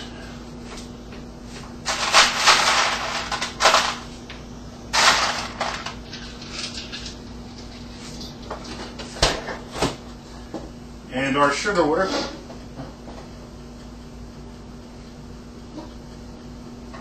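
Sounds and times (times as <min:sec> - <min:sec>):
ice cubes clattering: 0:01.9 - 0:04.0, 0:05.0 - 0:07.2.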